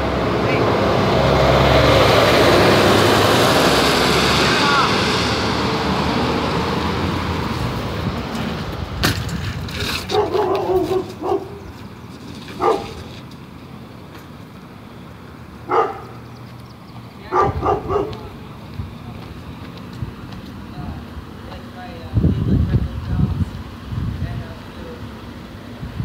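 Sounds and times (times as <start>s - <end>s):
passing vehicle: 0.0s - 26.0s
dog barking: 10.1s - 11.6s, 12.6s - 13.0s, 15.7s - 16.2s, 17.3s - 18.4s.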